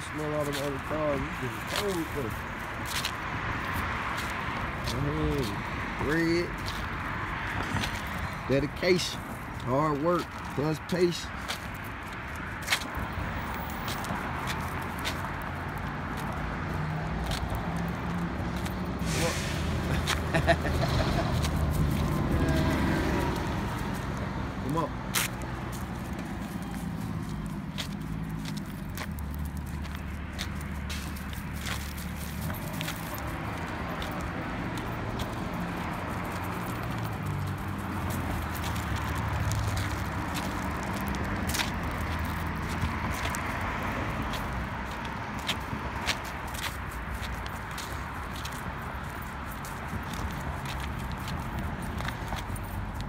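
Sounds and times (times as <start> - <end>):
footsteps and paw clicks: 0.0 - 19.0, 19.8 - 53.0
rustle of walking: 0.0 - 53.0.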